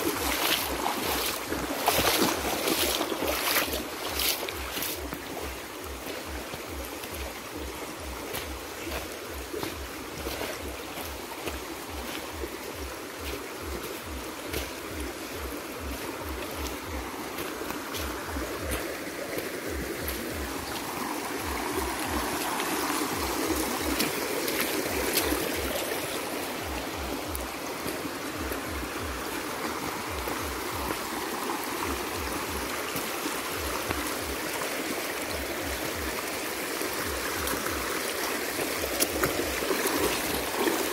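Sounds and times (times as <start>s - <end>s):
footsteps on stony bank: 0.0s - 40.9s
river rushing over rocks: 0.0s - 40.9s.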